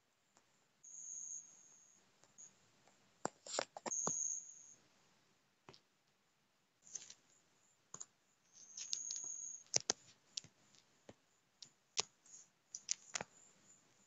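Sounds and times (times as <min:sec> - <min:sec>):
fingers tapping touchscreen: 0:08.0 - 0:11.2, 0:12.0 - 0:13.3
brief rustle: 0:08.6 - 0:10.8.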